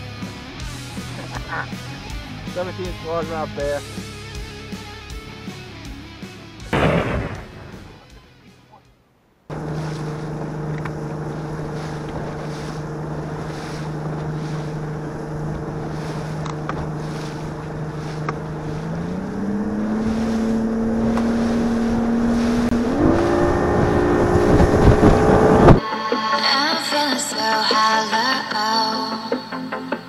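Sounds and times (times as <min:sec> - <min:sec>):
outboard motor droning: 0:09.5 - 0:25.8
wind buffeting microphone: 0:09.5 - 0:25.8
water slapping against hull: 0:09.7 - 0:22.8.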